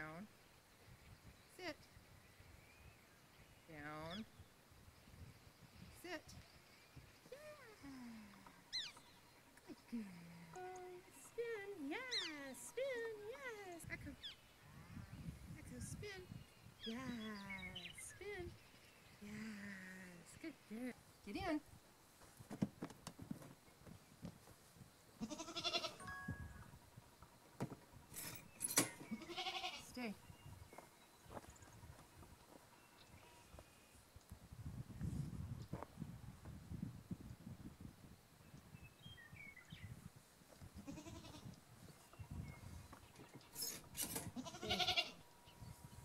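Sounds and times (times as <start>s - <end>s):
farm animal bleating: 25.2s - 26.0s, 29.1s - 30.0s, 40.8s - 41.5s, 44.3s - 45.2s.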